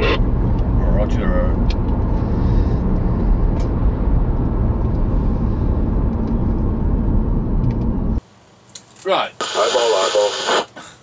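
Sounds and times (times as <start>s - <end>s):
road and tyre rumble: 0.0s - 8.2s.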